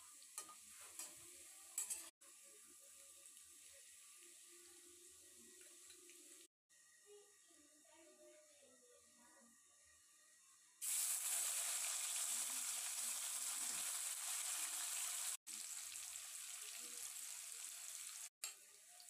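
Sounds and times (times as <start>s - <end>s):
cheese frying in hot oil: 0.0s - 6.5s, 10.8s - 19.0s.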